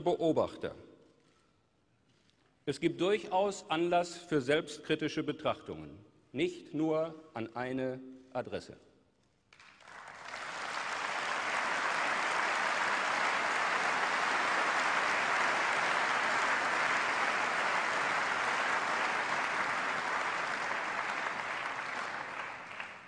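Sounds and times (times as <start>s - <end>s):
large audience applauding: 9.5s - 23.0s.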